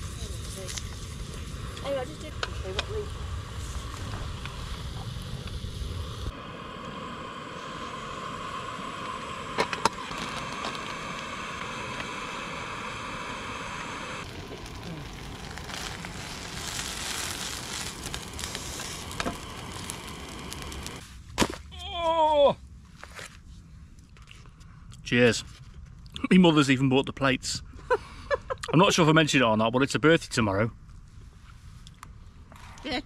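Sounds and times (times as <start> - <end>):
gas stove burning: 0.0 - 21.1
food sizzling in a pan: 1.5 - 21.0
short falling whine: 3.1 - 21.0.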